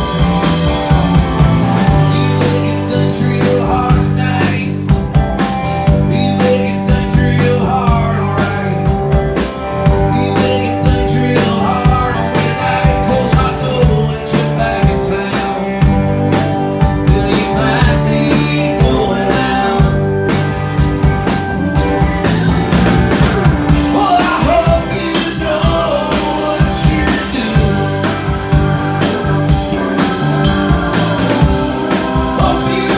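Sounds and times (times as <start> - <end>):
drum kit beat: 0.0 - 32.9
electric bass: 0.0 - 32.9
keyboard: 0.0 - 32.9
man singing: 1.8 - 5.0, 5.8 - 9.2, 9.8 - 16.2, 16.8 - 20.3, 23.8 - 29.1, 30.0 - 32.9.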